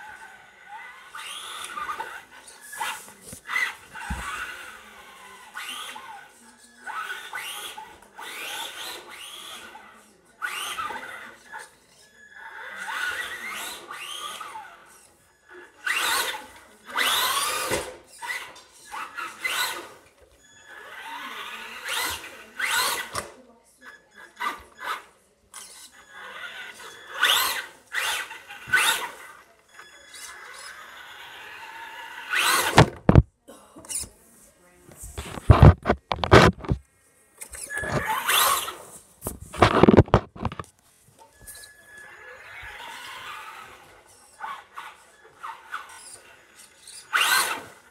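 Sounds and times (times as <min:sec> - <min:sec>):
electric toy car motor whining: 0:00.0 - 0:23.4, 0:24.0 - 0:33.2, 0:37.4 - 0:40.5, 0:41.3 - 0:47.9
loud thumps: 0:32.7 - 0:33.3.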